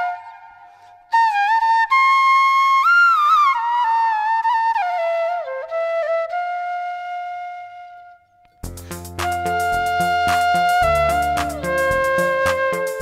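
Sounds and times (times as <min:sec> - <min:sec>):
solo flute melody: 0:00.0 - 0:13.0.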